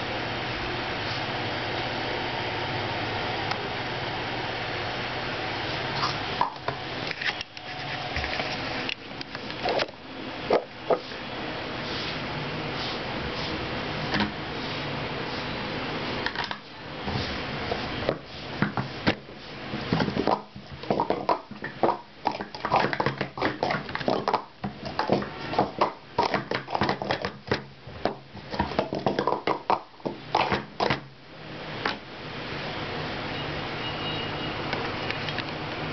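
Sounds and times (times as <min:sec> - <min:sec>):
plastic cups clattering: 0:18.0 - 0:31.0.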